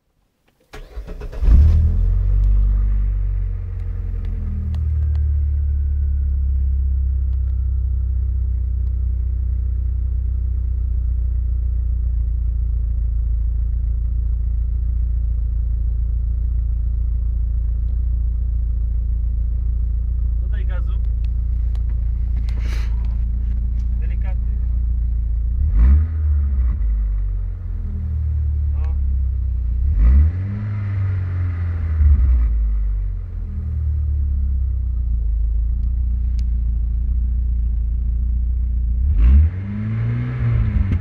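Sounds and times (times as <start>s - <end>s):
car engine starting and idling: 0.2s - 41.0s.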